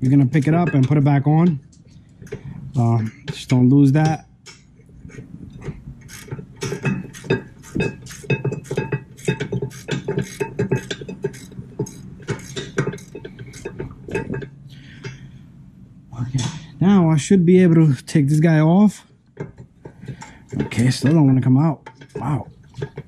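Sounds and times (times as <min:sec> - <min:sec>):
hand ratchet clicking: 0:06.0 - 0:13.7.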